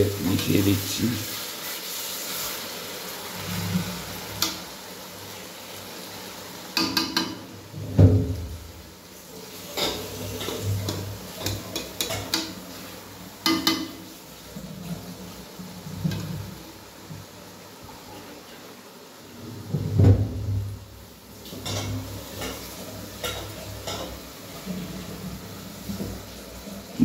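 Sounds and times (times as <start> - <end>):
masala sizzling in a pan: 0.0 - 27.0
metal spatula scraping a pan: 9.5 - 12.8, 21.6 - 24.8.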